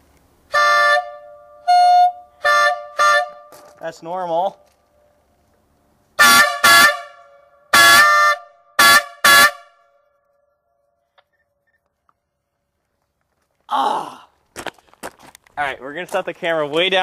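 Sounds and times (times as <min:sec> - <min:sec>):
air horn blasts: 0:00.5 - 0:03.6, 0:06.2 - 0:10.1.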